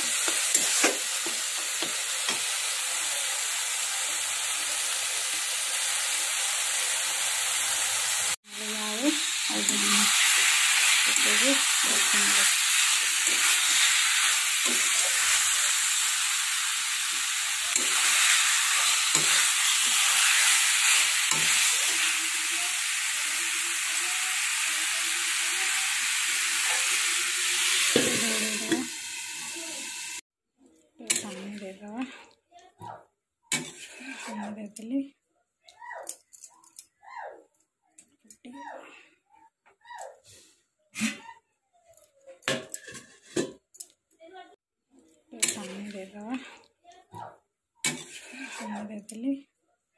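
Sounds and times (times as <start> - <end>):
oil sizzling in a pan: 0.0 - 30.2, 31.1 - 32.2, 33.5 - 34.4, 45.4 - 46.6, 47.8 - 48.7
metal spatula scraping a pan: 9.6 - 16.2, 17.0 - 22.2, 33.5 - 34.6, 42.5 - 43.6, 47.8 - 48.9.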